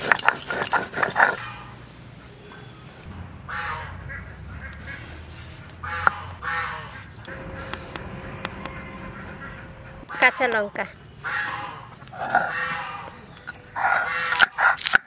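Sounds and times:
ducks quacking: 0:03.4 - 0:13.2.

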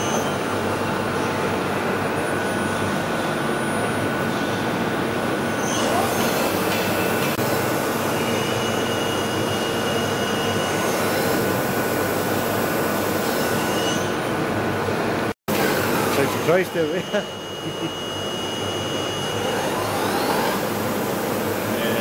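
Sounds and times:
machine spindle drive running: 0:15.5 - 0:22.0.

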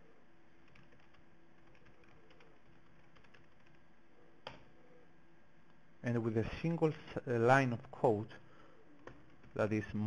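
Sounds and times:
keyboard typing: 0:00.6 - 0:03.8.

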